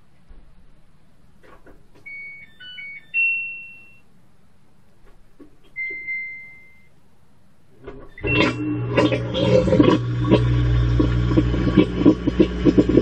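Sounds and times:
washing machine electronic beeps: 0:02.0 - 0:04.1, 0:05.7 - 0:07.0, 0:08.0 - 0:11.4.

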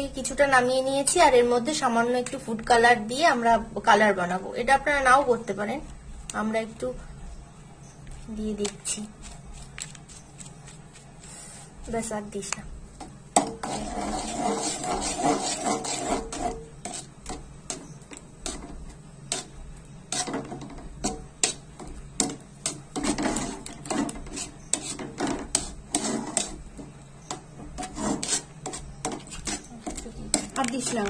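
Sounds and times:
metal spatula scraping metal pan: 0:13.4 - 0:21.6, 0:22.2 - 0:31.0.

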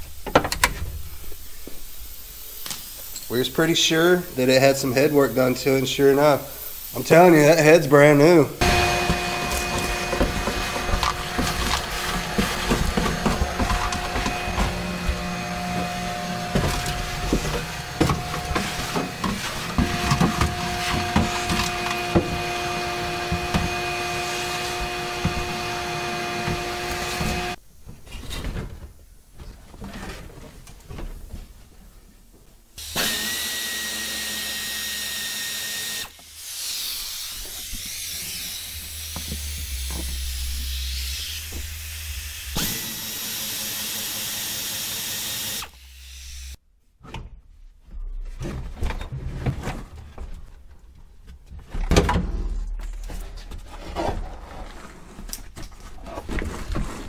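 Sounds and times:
power drill running: 0:08.6 - 0:27.6, 0:32.8 - 0:46.6.

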